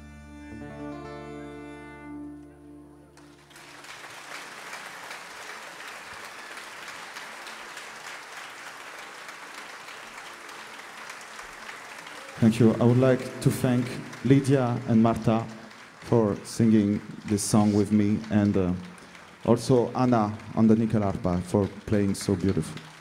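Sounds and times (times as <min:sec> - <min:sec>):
folk ensemble with bowed strings: 0:00.0 - 0:03.8
audience applause: 0:03.1 - 0:23.0.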